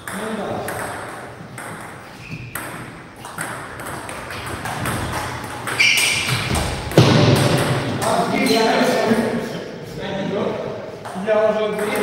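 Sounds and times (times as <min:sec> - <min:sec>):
ping pong ball clicking: 0:02.6 - 0:05.8.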